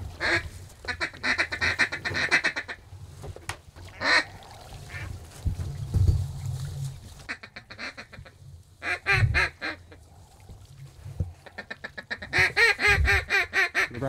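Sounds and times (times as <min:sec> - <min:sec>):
ducks quacking: 0:00.1 - 0:02.8, 0:03.8 - 0:05.2, 0:07.2 - 0:10.0, 0:11.4 - 0:14.0
low rumble on microphone: 0:04.0 - 0:07.3, 0:08.2 - 0:13.4.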